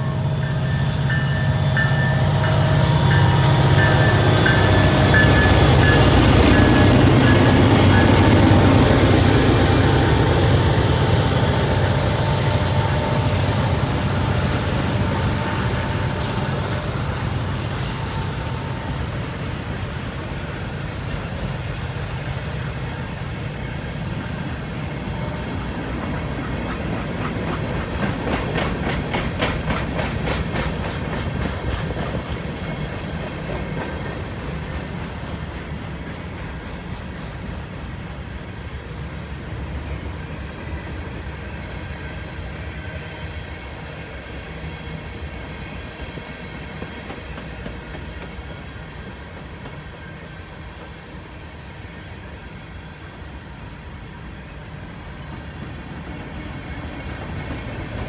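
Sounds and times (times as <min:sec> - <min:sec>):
diesel locomotive engine rumble: 0:00.0 - 0:58.0
wheels clacking over rail joints: 0:25.9 - 0:37.8.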